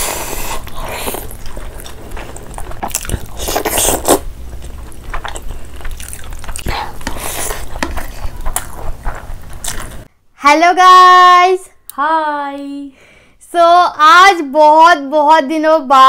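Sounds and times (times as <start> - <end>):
person biting and chewing: 0.0 - 10.1
wet mouth clicks and crunches: 0.5 - 10.1.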